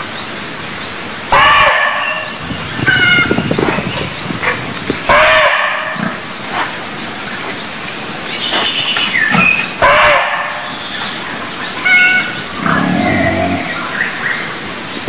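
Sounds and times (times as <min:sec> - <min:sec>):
deer barking: 0:01.3 - 0:02.3, 0:04.5 - 0:06.2, 0:09.8 - 0:10.6.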